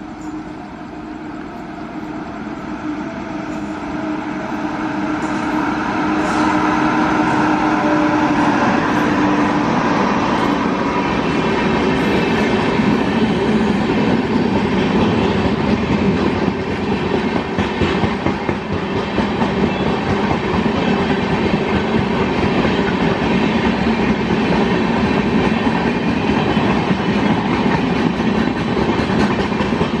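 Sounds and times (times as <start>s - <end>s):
train wheels rumbling on rails: 0.0s - 30.0s
clickety-clack of rail joints: 10.3s - 30.0s.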